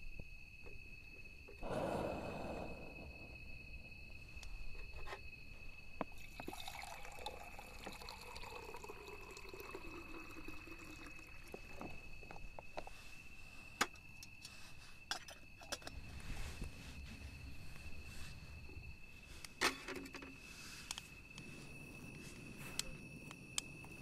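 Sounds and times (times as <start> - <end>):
water pouring into a metal pot: 6.2 - 11.7.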